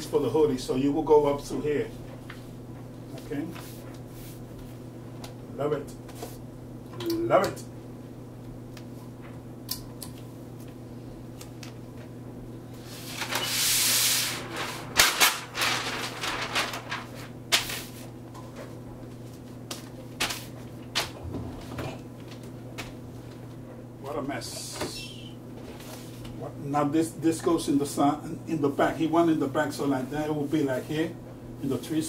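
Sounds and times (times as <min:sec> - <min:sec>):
low electrical hum: 0:00.0 - 0:32.0
paper rustling and crinkling: 0:12.8 - 0:23.6.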